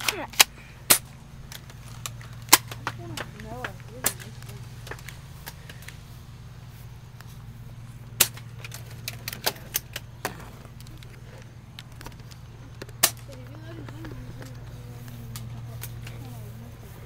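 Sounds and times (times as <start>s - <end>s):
pellets striking: 0.0s - 5.9s.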